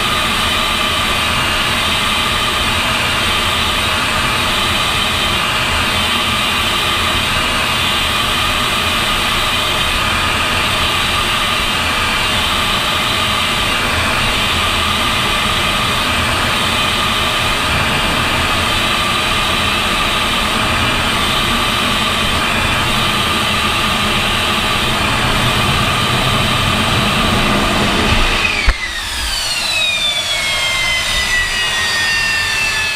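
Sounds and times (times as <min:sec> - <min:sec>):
jet engine noise with whine: 0:00.0 - 0:32.9
jet landing thump: 0:22.4 - 0:30.0.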